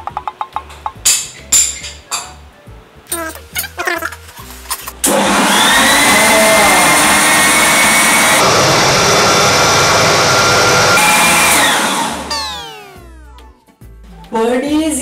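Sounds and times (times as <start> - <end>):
electric blender running: 5.0 - 13.4.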